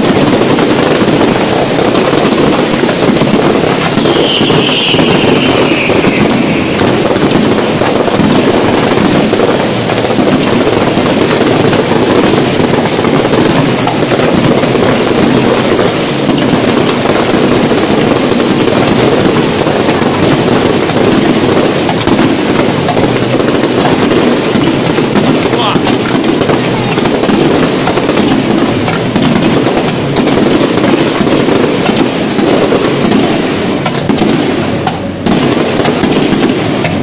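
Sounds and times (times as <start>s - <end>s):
fireworks crackling and bursting: 0.0s - 37.0s
falling firework whistle: 3.6s - 8.0s.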